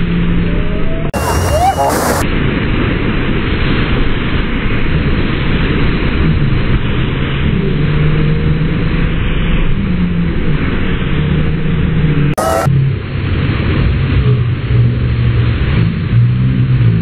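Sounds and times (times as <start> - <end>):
rushing whitewater roar: 3.6 - 14.0.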